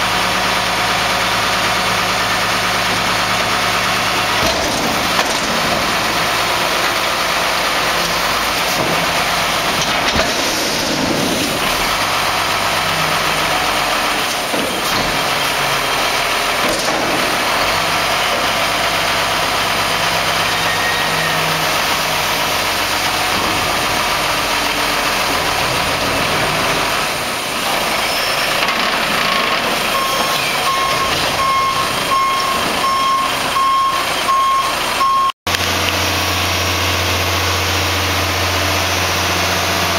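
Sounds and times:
diesel truck engine running: 0.0s - 39.9s
truck back-up alarm beeps: 29.4s - 35.4s.

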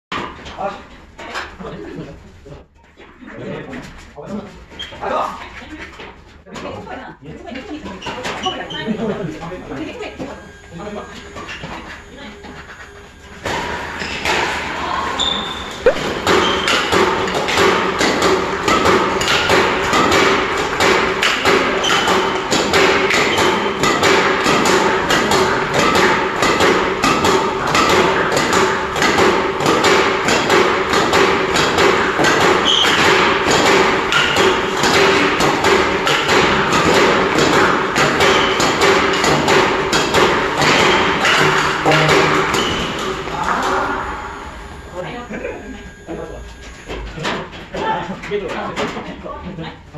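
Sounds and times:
badminton racket hitting shuttlecocks: 15.9s - 43.6s.

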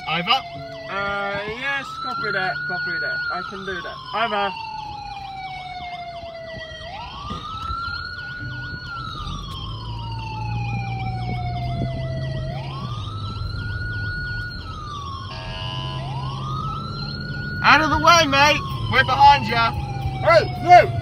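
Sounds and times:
fast siren warble: 0.0s - 21.0s
siren wail: 0.0s - 21.0s
vehicle hum: 0.0s - 21.0s.

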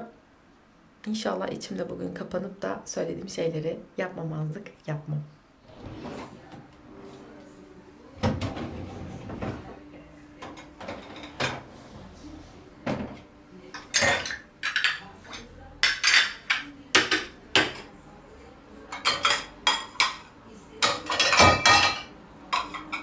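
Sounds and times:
dishes and cutlery clattering: 10.4s - 11.7s, 12.9s - 17.9s, 18.9s - 23.0s.

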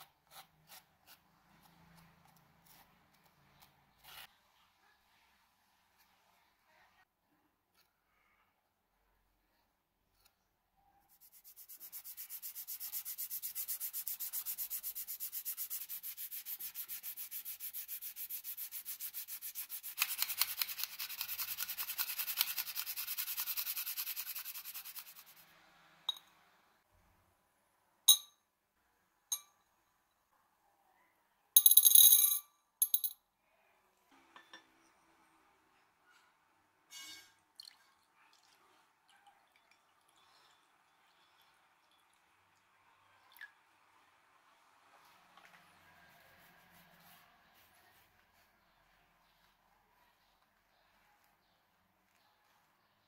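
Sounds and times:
sandpaper rasping on metal: 11.1s - 25.4s.

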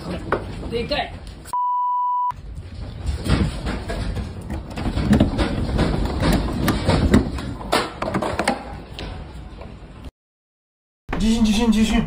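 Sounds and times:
furniture rattling and knocking: 2.5s - 8.8s.

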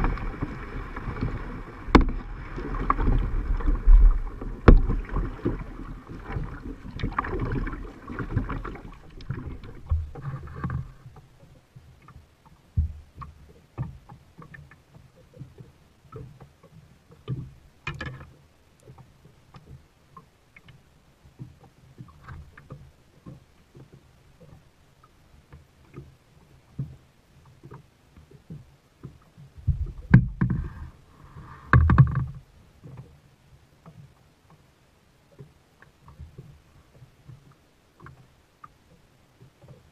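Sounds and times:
water sloshing: 0.0s - 12.2s
knocks on plastic kayak: 1.9s - 2.2s, 4.6s - 5.0s.

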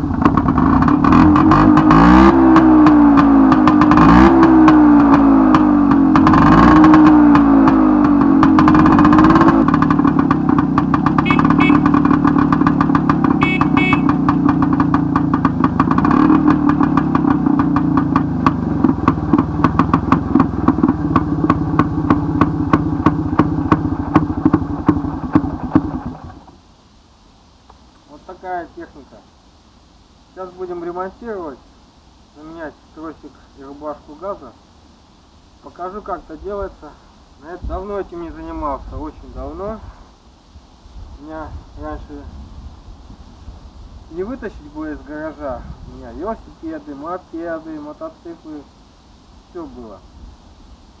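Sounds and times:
two-stroke motorcycle engine revving: 0.0s - 26.5s.

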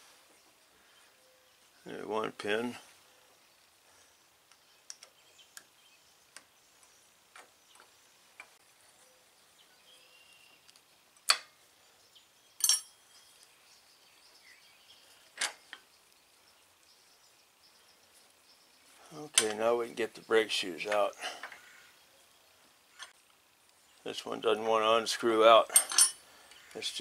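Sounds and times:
ringing metallic clatter: 12.6s - 12.9s
small metal clicks and clinks: 12.6s - 13.0s, 25.7s - 26.6s.

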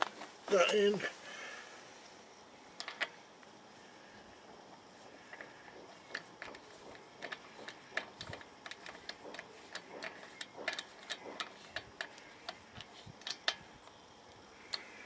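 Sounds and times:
metallic clicks of bolt turning: 2.8s - 3.2s, 5.3s - 14.0s, 14.7s - 14.9s.

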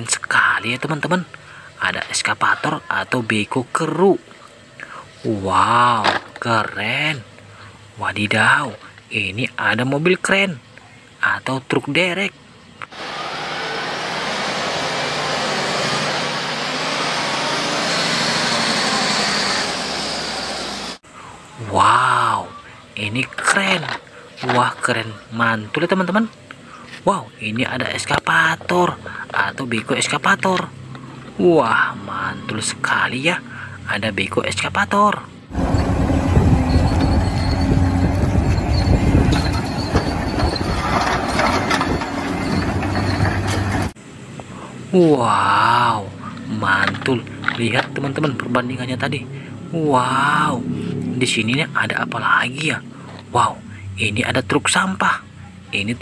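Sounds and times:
high whine: 12.8s - 22.8s, 35.5s - 43.9s
heavy diesel engine: 12.9s - 21.0s, 35.5s - 44.0s.

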